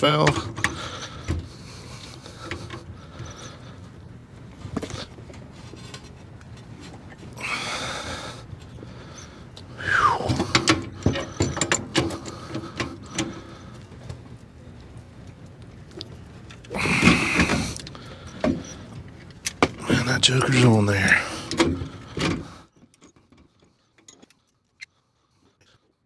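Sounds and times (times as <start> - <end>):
metal clicks and knocks: 10.3 - 13.4.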